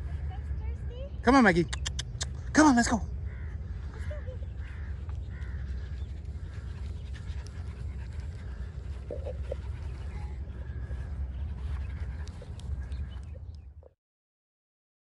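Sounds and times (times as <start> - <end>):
steady low rumble: 0.0 - 13.9
small dog panting: 3.7 - 13.5.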